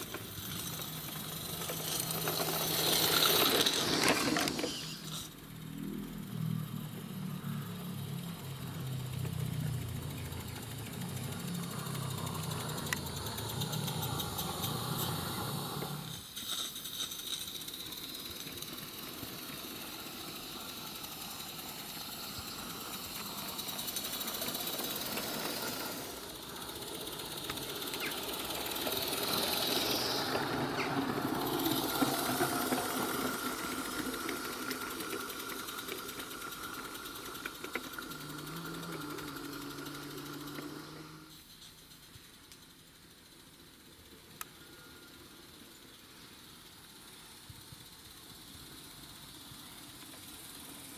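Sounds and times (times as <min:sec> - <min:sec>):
steam locomotive running: 0:00.0 - 0:50.9
wheels on track: 0:00.0 - 0:50.9.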